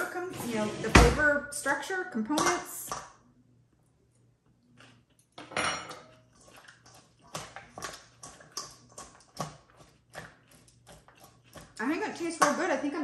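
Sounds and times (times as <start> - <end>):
utensil clinking against a bowl: 5.4 - 13.0.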